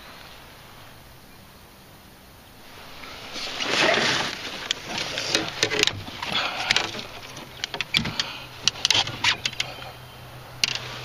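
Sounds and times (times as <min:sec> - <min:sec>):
knocks and clicks in a canoe: 0:03.0 - 0:11.0.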